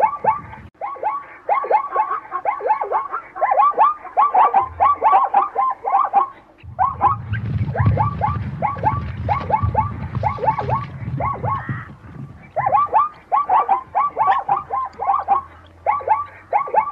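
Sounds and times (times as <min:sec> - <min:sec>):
zebra barking: 0:00.0 - 0:16.9
low rumble: 0:06.6 - 0:12.6.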